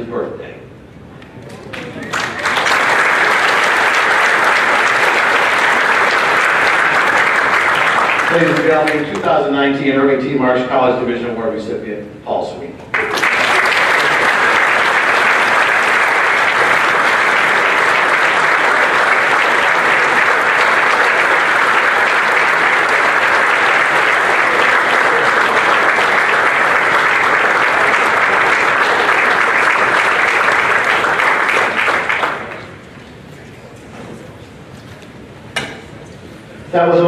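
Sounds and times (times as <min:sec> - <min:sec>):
large audience applauding: 0:01.5 - 0:09.4, 0:12.9 - 0:33.0.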